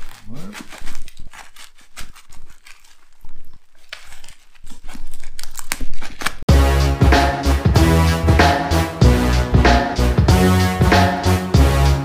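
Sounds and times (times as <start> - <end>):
package tearing and crinkling: 0.0 - 6.5
loud music: 6.5 - 12.0.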